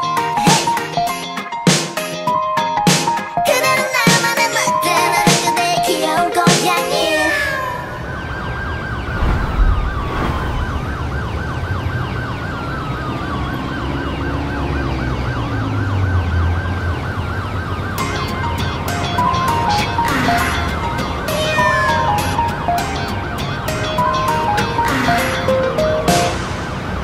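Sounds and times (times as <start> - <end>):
siren yelp and wail effect: 7.0 - 17.9, 21.3 - 22.4.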